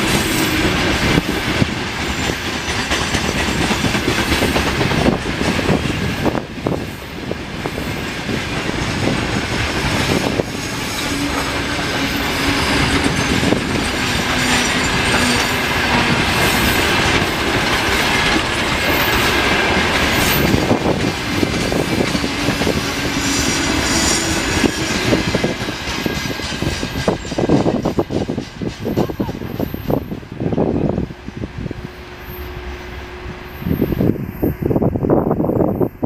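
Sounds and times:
freight train wheels rumbling: 0:00.0 - 0:36.0.

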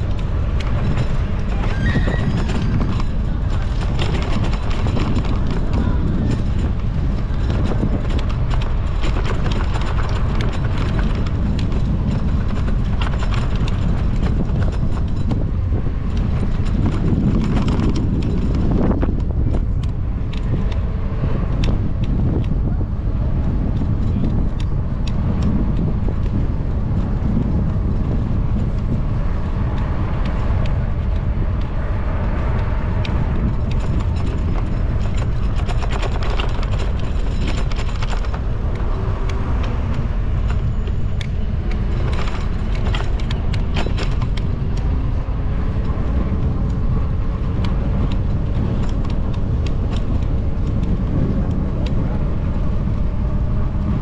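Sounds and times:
bicycle tyre and wind noise: 0:00.0 - 0:54.0
car traffic: 0:00.0 - 0:54.0
light clicks and rattles: 0:00.0 - 0:54.0.

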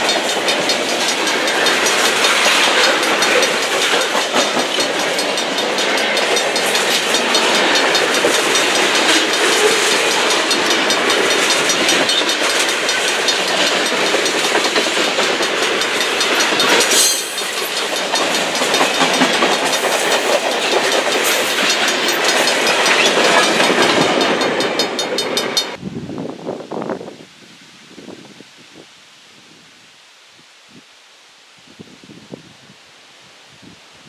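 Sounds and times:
wheels clicking over rail joints: 0:00.0 - 0:25.8
freight train wheels rumbling: 0:00.0 - 0:27.1.

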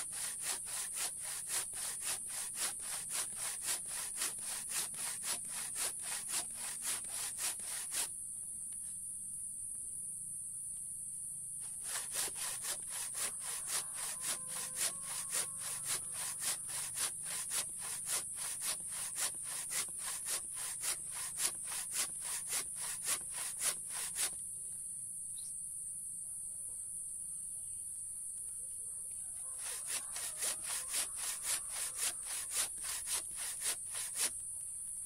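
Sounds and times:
hand saw cutting wood: 0:00.0 - 0:08.1, 0:11.6 - 0:24.4, 0:29.5 - 0:34.4.

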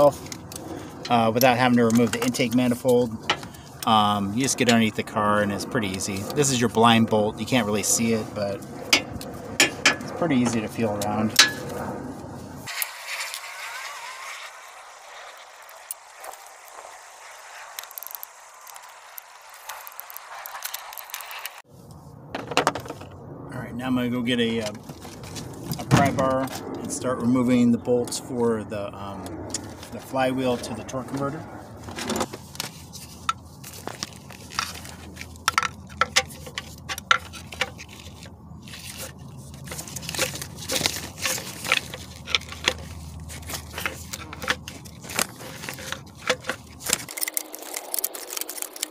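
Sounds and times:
steady hiss: 0:12.6 - 0:21.7
pry bar scraping on gear teeth: 0:33.1 - 0:48.9.

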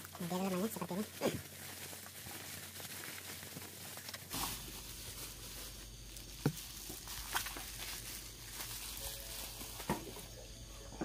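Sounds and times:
bubble wrap crinkling: 0:00.0 - 0:10.8.

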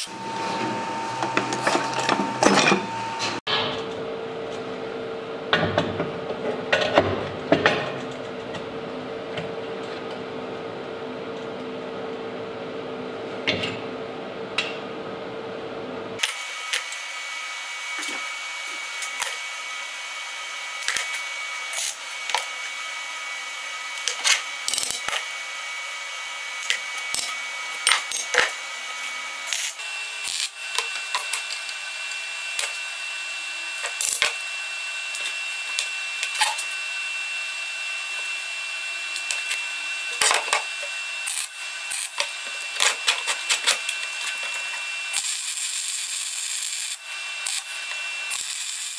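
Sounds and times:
steady high tone: 0:00.0 - 0:03.4
steel plates and tools clinking: 0:00.0 - 0:03.4.

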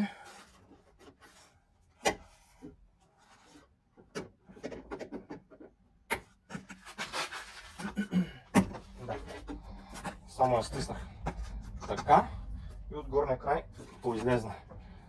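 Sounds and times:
rubbing and small knocks: 0:00.4 - 0:12.4.

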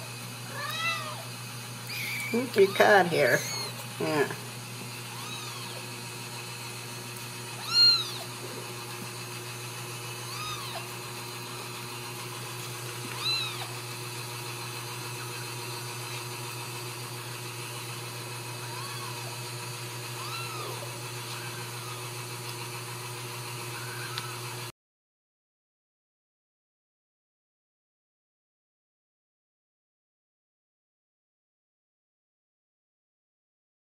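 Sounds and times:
steady low hum: 0:00.0 - 0:16.2
kitten meowing: 0:00.5 - 0:01.2, 0:01.8 - 0:03.8, 0:05.0 - 0:05.9, 0:07.6 - 0:08.3, 0:10.2 - 0:10.9, 0:13.0 - 0:13.8, 0:18.6 - 0:19.3, 0:20.2 - 0:22.0, 0:23.8 - 0:24.4.

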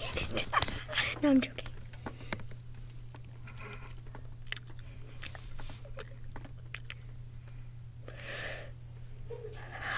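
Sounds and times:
steady low hum: 0:00.0 - 0:09.9
crunchy chewing: 0:02.8 - 0:07.3.

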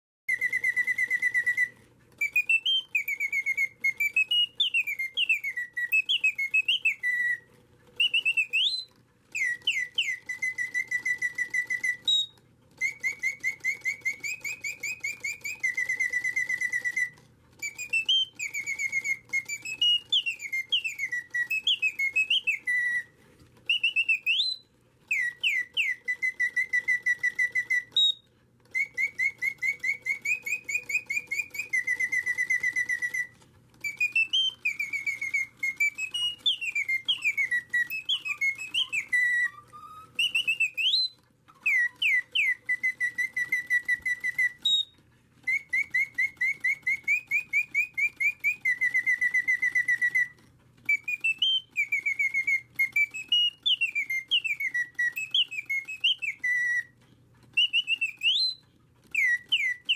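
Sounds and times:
mechanical bird whistling: 0:00.3 - 0:59.9.

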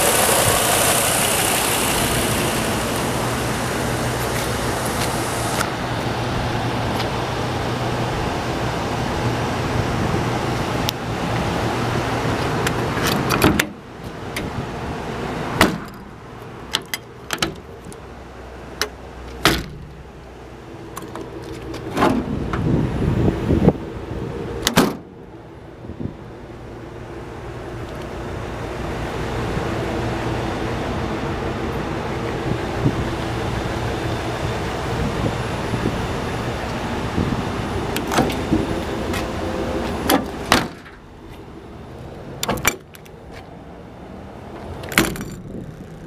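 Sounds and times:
steady rushing noise: 0:00.0 - 0:13.1
metal compartment door clicks and knocks: 0:13.0 - 0:13.8, 0:15.6 - 0:16.0, 0:16.7 - 0:17.7, 0:18.8 - 0:20.0, 0:24.6 - 0:25.1, 0:38.0 - 0:38.4, 0:40.1 - 0:41.0, 0:42.4 - 0:43.0, 0:44.8 - 0:45.8.

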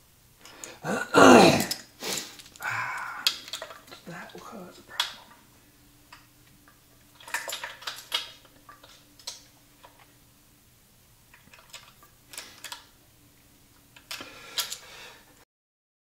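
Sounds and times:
faint steady hum: 0:00.0 - 0:15.4
small metal parts clinking: 0:01.6 - 0:02.6, 0:03.2 - 0:05.3, 0:07.1 - 0:10.0, 0:11.3 - 0:12.9, 0:14.0 - 0:14.8.

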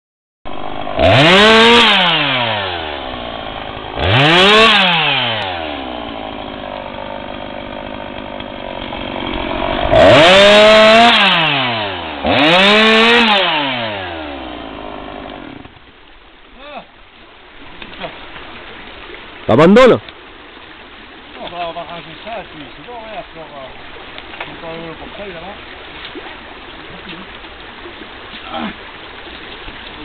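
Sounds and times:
chainsaw engine revving: 0:00.5 - 0:15.8.

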